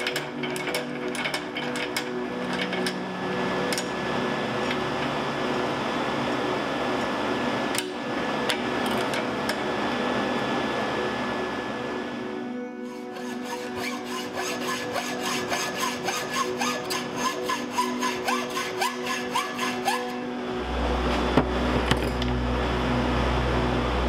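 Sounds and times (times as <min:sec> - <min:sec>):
hacksaw cutting metal: 0:00.0 - 0:03.0, 0:12.9 - 0:20.2
low hum: 0:00.0 - 0:24.0.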